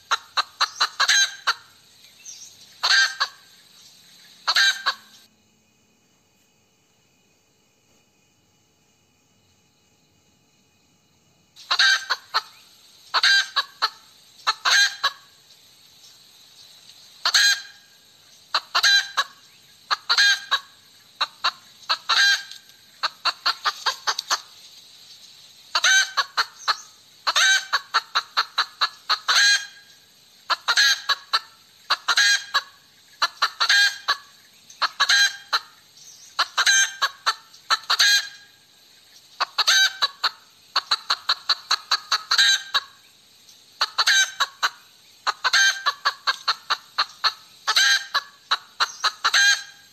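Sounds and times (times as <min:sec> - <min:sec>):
hen cackling: 0:00.0 - 0:01.8, 0:02.8 - 0:03.6, 0:04.3 - 0:05.3, 0:11.6 - 0:15.4, 0:17.2 - 0:24.6, 0:25.7 - 0:38.7, 0:39.4 - 0:43.0, 0:43.8 - 0:49.9.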